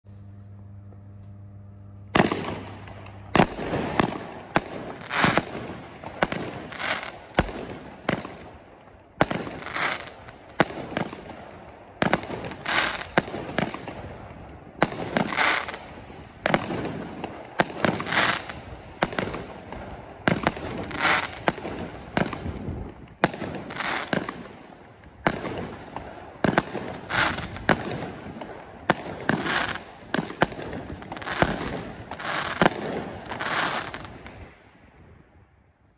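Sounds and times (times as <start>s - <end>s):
firework bursts: 0.1s - 35.0s
firework launch shots: 2.1s - 8.6s.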